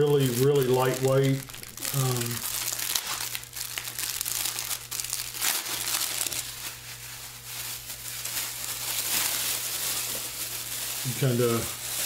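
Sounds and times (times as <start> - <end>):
plastic poncho crinkling: 0.0 - 12.0.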